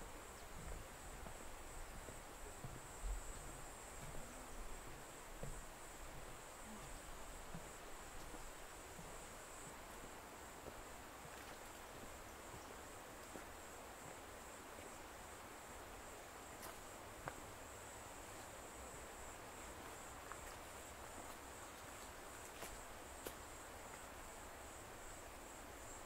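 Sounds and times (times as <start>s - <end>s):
soft hiss: 0.0s - 26.0s.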